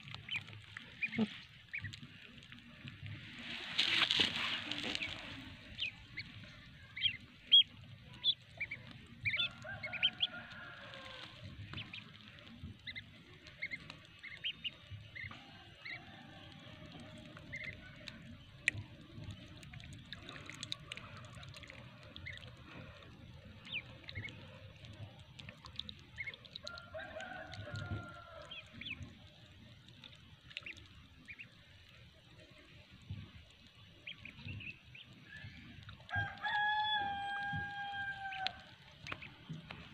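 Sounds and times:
ducklings peeping: 0.0s - 39.9s
hen clucking: 0.2s - 2.0s, 3.6s - 16.0s.

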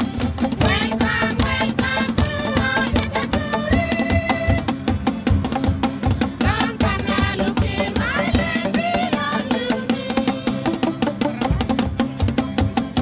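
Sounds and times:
guitar: 0.0s - 13.0s
women singing: 0.6s - 4.7s, 6.4s - 10.8s.

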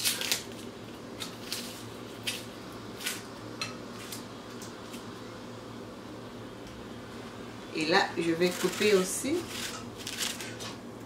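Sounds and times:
knife scratching onion skin: 8.5s - 10.5s.

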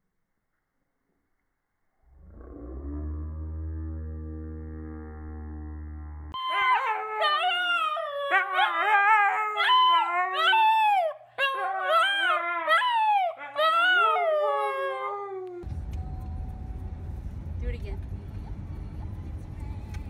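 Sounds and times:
husky howling: 2.4s - 15.7s.

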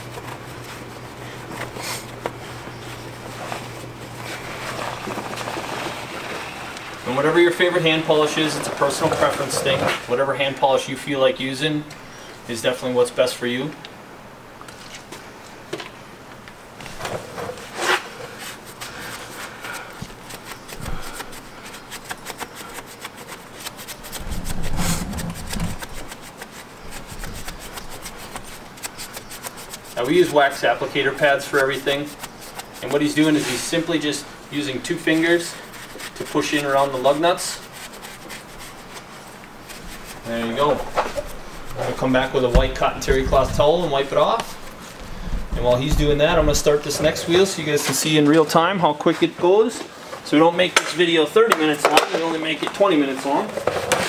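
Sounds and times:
steady low hum: 0.0s - 47.7s
applicator pad rubbing metal wheel: 17.7s - 47.2s.

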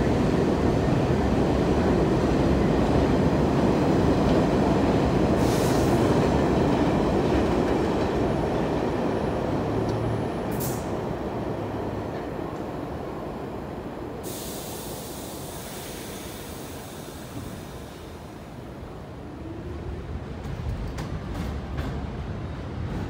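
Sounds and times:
subway train equipment rumbling: 0.0s - 23.0s
air hiss bursts: 5.4s - 6.0s, 14.2s - 18.2s.

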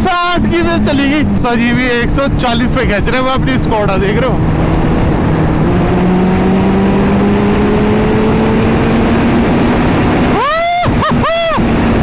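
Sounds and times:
heavy wind rush: 0.0s - 12.0s
motorcycle engine pulling hard: 0.0s - 12.0s.

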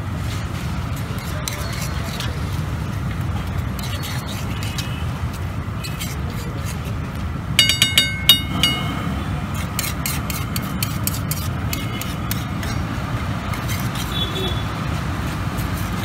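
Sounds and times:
spatula scraping on iron griddle: 0.3s - 8.9s, 9.5s - 16.0s
ringing metal clangs: 7.6s - 9.2s.

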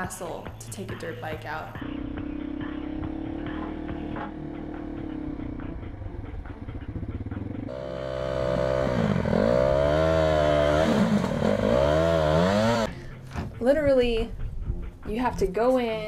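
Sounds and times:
dirt bike engine running: 1.8s - 12.9s.

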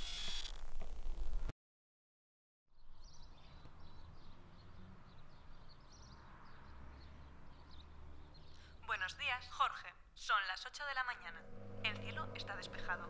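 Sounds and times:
faint birds chirping: 2.7s - 9.4s
loud electronic buzz: 11.3s - 13.0s.

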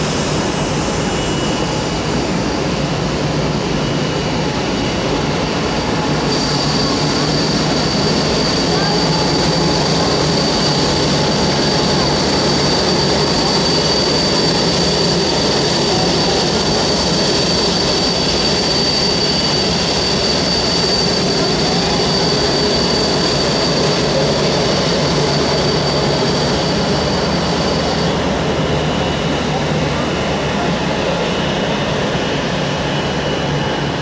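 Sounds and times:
high-pitched turbine whine: 0.0s - 34.0s
jet engines running: 0.0s - 34.0s.

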